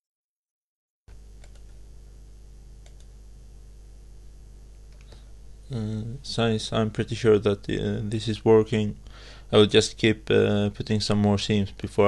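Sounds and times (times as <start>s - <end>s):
low electrical hum: 1.1s - 12.0s
microphone hiss: 1.1s - 12.0s
faint clicks: 2.8s - 3.1s, 4.9s - 5.2s.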